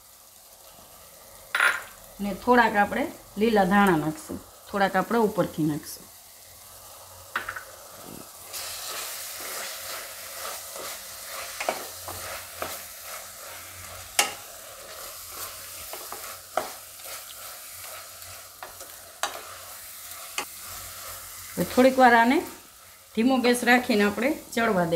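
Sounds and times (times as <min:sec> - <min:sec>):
food sizzling in a wok: 0:00.0 - 0:24.9
spatula scraping and knocking pan: 0:08.8 - 0:19.6.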